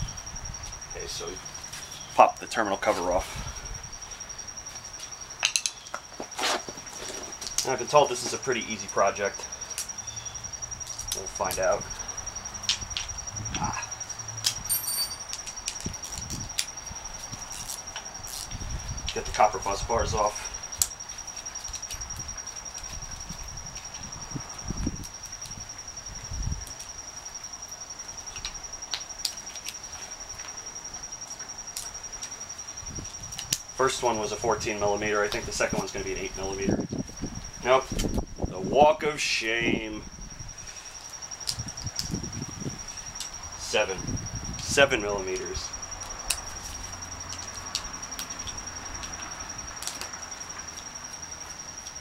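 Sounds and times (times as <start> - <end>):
crickets chirping: 0.0 - 52.0
high-pitched insect trill: 0.0 - 52.0
metal tools clicking: 14.7 - 16.2.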